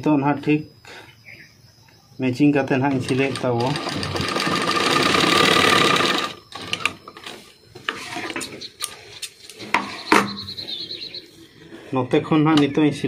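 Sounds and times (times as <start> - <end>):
sewing machine stitching: 2.9 - 6.9.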